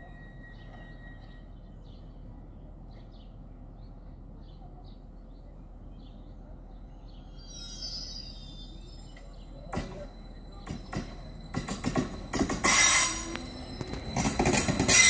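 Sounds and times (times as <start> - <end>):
faint bird chirps: 0.0 - 12.3
outdoor background noise: 0.0 - 15.0.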